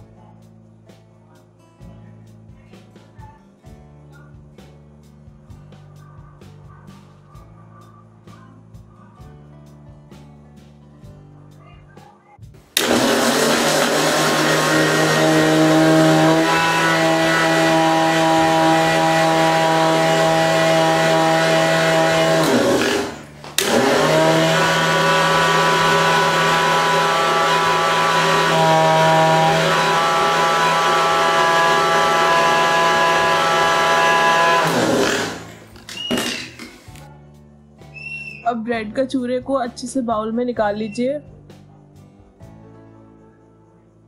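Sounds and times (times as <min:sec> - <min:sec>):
mixer grinder motor hum: 0:12.8 - 0:37.0.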